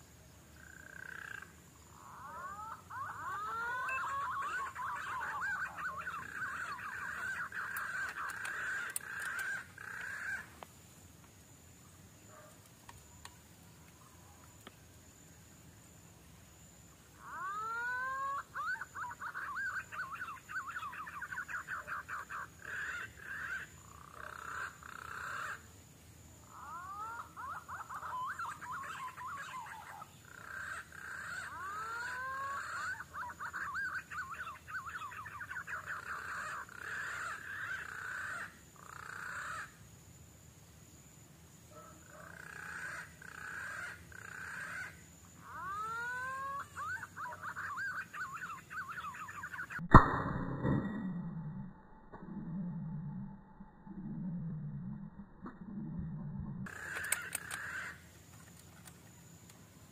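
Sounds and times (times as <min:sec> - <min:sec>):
birds whistling and chirping: 0:02.8 - 0:09.6.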